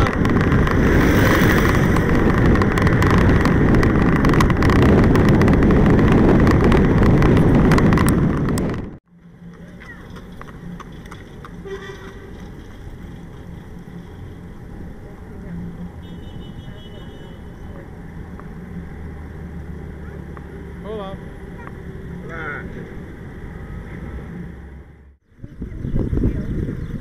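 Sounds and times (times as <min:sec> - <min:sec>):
wind rushing over microphone: 0:00.0 - 0:09.0, 0:25.3 - 0:27.0
traffic noise: 0:00.0 - 0:27.0
tyre and road noise: 0:00.0 - 0:27.0.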